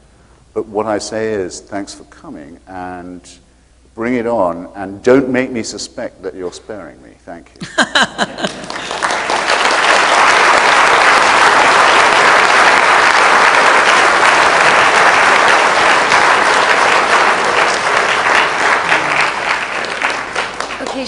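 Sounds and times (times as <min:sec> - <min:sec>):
audience applauding: 0:08.2 - 0:21.0.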